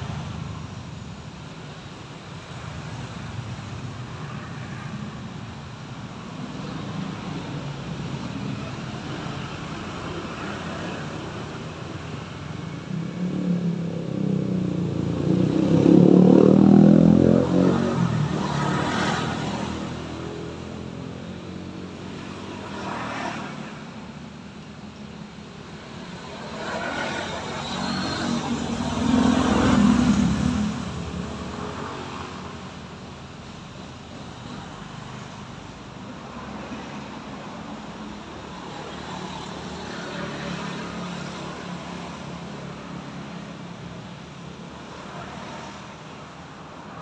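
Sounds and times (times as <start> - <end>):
city traffic hum: 0.0 - 47.0
vehicle passing by: 12.8 - 23.8, 26.0 - 32.6.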